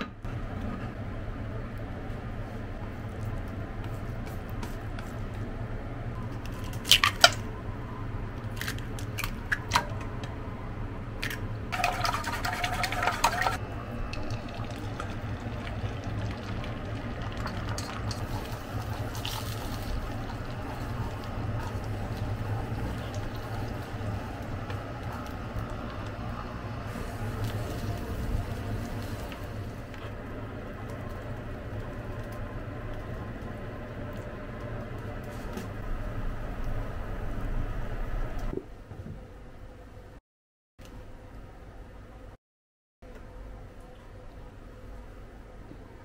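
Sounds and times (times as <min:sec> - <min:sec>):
chopsticks beating eggs in metal bowl: 0:11.7 - 0:30.1
egg stirred in frying pan: 0:11.7 - 0:33.6.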